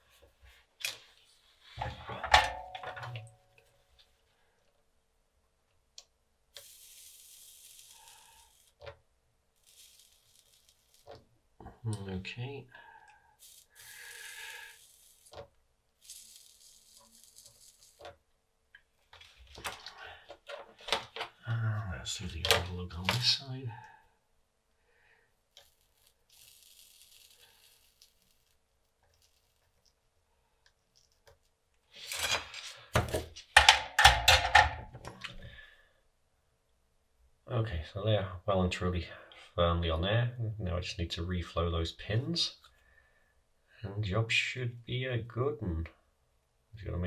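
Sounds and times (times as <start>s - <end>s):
solder sizzling on soldering iron: 6.5s - 8.9s, 9.5s - 11.2s, 13.4s - 18.1s, 25.5s - 29.9s.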